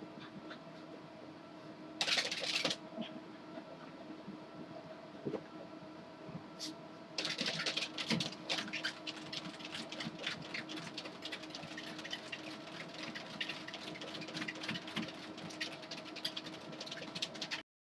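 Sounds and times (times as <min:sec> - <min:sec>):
dog paws pattering on treadmill: 0:07.2 - 0:17.6
treadmill motor hum: 0:07.2 - 0:17.6.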